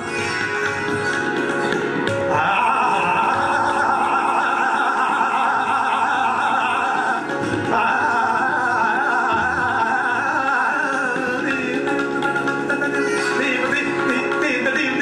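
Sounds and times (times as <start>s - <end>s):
instrumental accompaniment: 0.0s - 15.0s
steady drone: 2.3s - 11.4s
man singing classical vocals: 2.3s - 15.0s.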